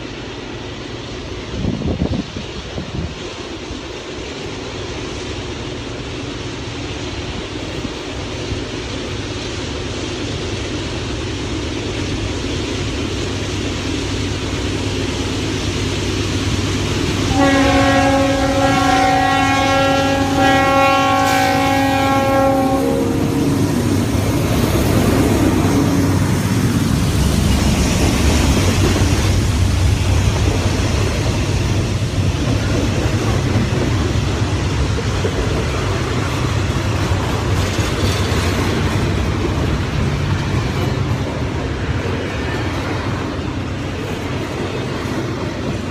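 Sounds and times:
diesel locomotive engine: 0.0s - 45.9s
train horn blast: 17.3s - 23.8s
train wheels clickety-clack: 23.4s - 45.9s.

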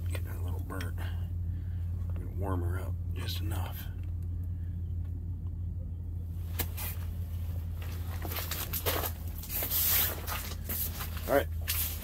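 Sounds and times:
low mechanical rumble: 0.0s - 12.0s.

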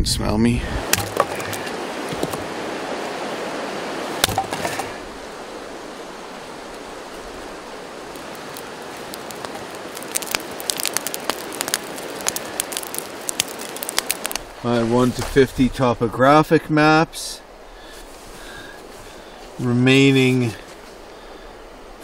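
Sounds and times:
river water rushing: 0.7s - 15.1s
sharp crackles: 6.3s - 16.4s.

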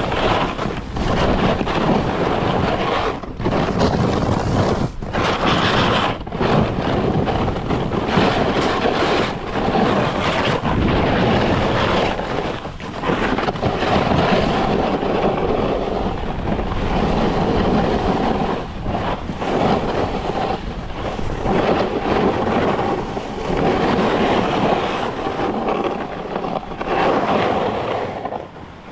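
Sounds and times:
skis hissing over snow: 0.0s - 28.4s
wind on microphone: 0.0s - 28.9s.

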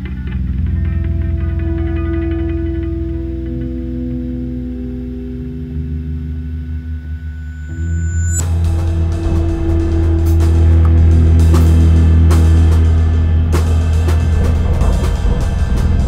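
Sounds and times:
held low drone: 0.0s - 16.0s
drum kit with cymbals: 8.4s - 16.0s.

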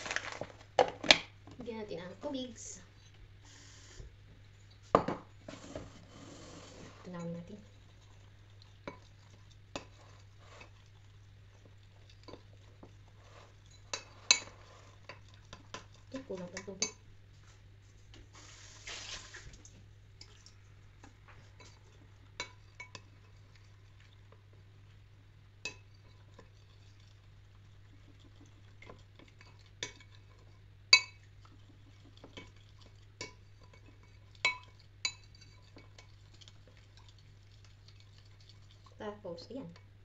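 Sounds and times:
water pouring: 18.4s - 20.6s
spoon clinking against bowl: 34.4s - 36.1s.

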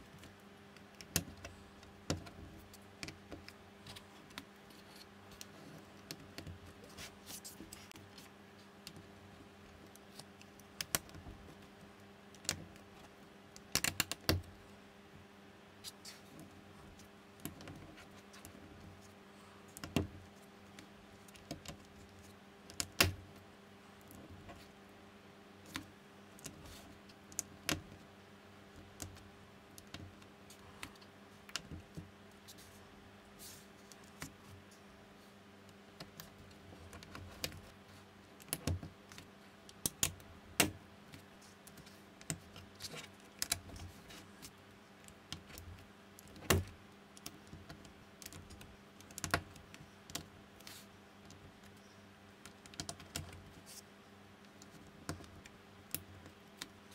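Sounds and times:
faint steady hum: 0.0s - 56.9s.

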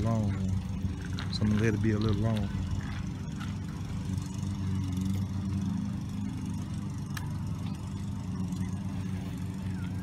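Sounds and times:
low mechanical hum: 0.0s - 10.0s.

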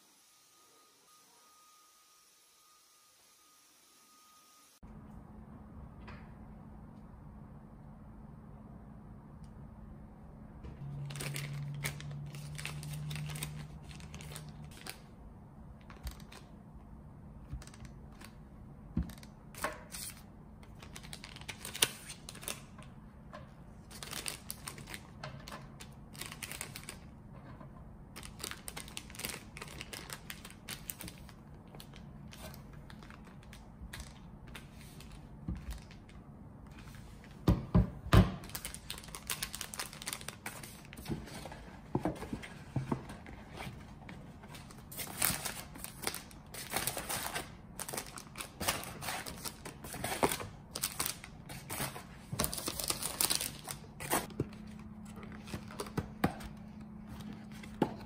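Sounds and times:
plastic bags crinkling: 23.9s - 27.1s, 28.2s - 36.2s, 38.4s - 41.0s, 44.6s - 51.8s, 52.4s - 56.5s.

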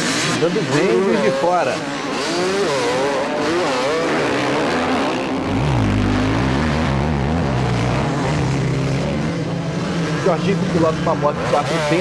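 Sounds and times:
motorcycle engine revving: 0.0s - 12.0s
deeper steady engine note: 5.2s - 9.7s.

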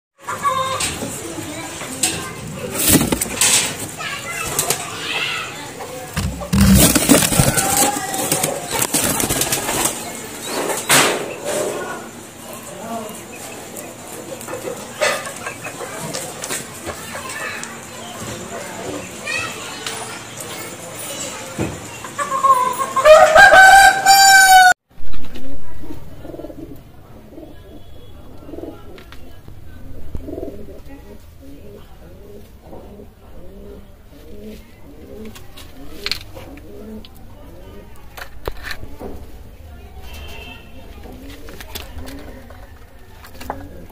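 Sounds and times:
knocks and rustles: 2.7s - 3.9s, 6.2s - 10.0s
rooster crowing: 22.4s - 24.8s
pigeons cooing: 26.1s - 37.8s, 43.2s - 43.9s.

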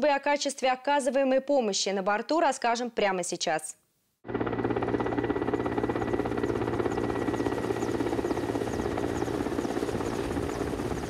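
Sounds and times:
helicopter engine noise: 4.3s - 11.0s
helicopter rotor beating: 4.3s - 11.0s.

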